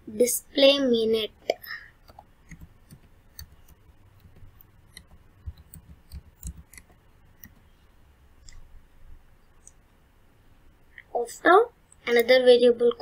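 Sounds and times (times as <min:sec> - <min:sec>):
keyboard typing clicks: 0:02.0 - 0:07.7.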